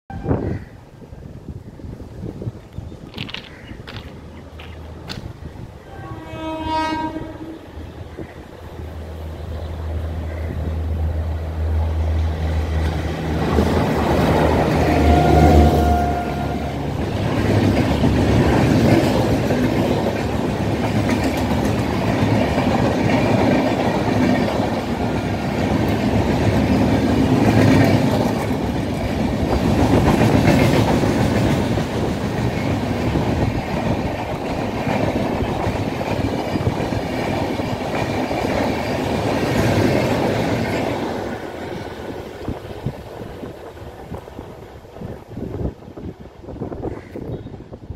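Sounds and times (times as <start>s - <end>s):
train wheels clattering on rails: 2.6s - 5.4s, 12.5s - 45.8s.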